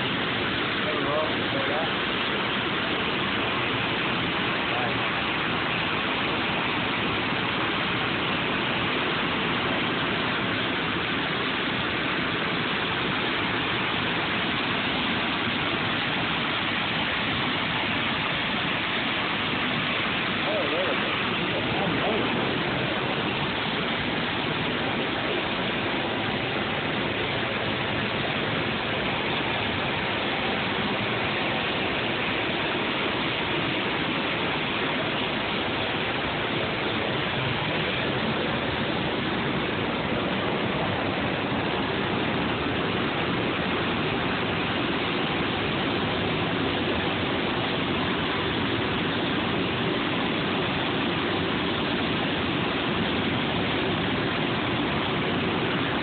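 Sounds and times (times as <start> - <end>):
waterfall rushing into pool: 0.0 - 56.0.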